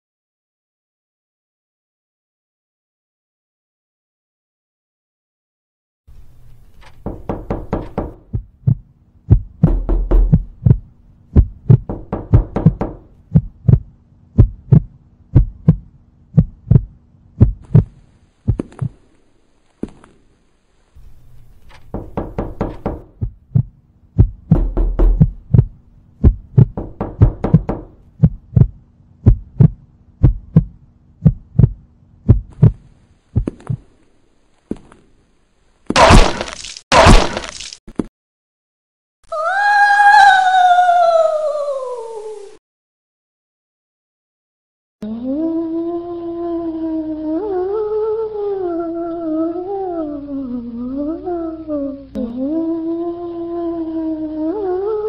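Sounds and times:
rhythmic thumps and knocks: 0:06.9 - 0:17.9, 0:21.8 - 0:32.8.

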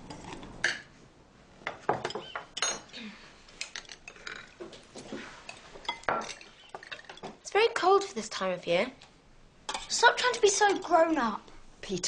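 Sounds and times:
plates and cutlery clinking: 0:05.4 - 0:07.4.

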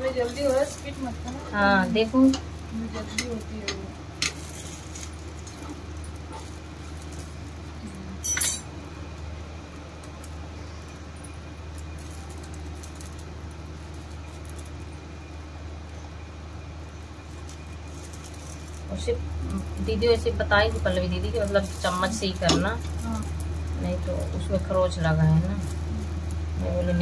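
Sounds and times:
steady low hum: 0:00.0 - 0:27.0
metal utensil clinking on pan: 0:08.2 - 0:08.7.

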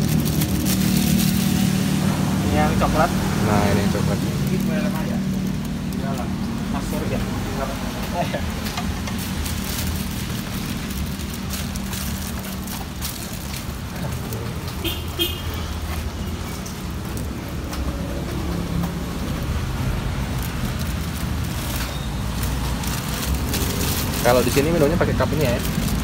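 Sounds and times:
plastic bags crinkling: 0:00.0 - 0:26.0
road traffic rumble: 0:00.0 - 0:26.0
high horn toot: 0:14.8 - 0:15.8.

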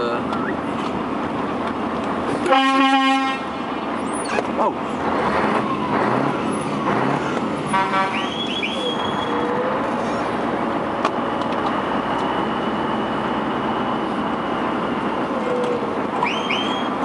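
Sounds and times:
diesel engine running: 0:00.0 - 0:17.0
truck horn: 0:02.4 - 0:03.7, 0:07.6 - 0:09.4
rising whistle-like tones: 0:08.1 - 0:09.8, 0:16.2 - 0:17.0.

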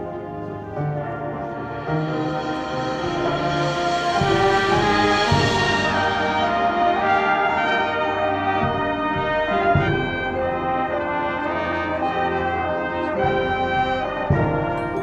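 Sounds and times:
brass sustained chords: 0:00.0 - 0:15.0
percussion hits: 0:01.6 - 0:07.6, 0:13.1 - 0:15.0.

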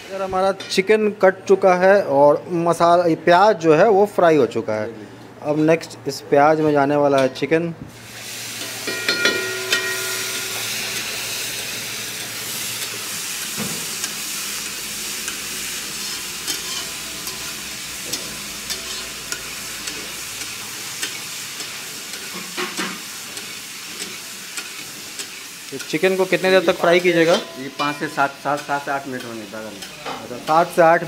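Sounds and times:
chicken sizzling in oil: 0:08.0 - 0:31.0
metal spatula scraping pan: 0:15.9 - 0:20.0, 0:26.7 - 0:30.2.

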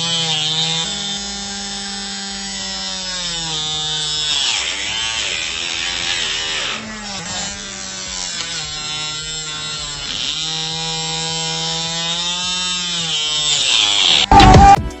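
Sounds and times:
toy motor buzzing: 0:00.0 - 0:14.4.

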